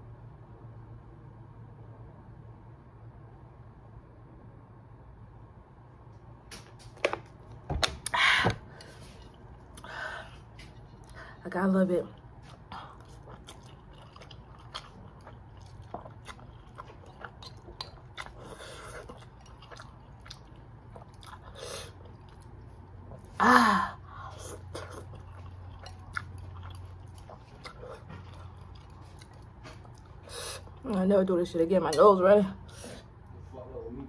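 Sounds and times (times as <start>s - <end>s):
person chewing noodles: 8.7s - 11.4s, 12.2s - 23.4s, 24.1s - 30.9s.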